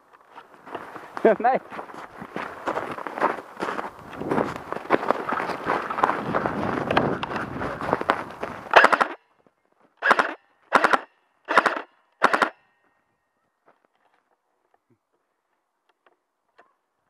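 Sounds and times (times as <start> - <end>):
footsteps crunching on snow: 0.0 - 8.8.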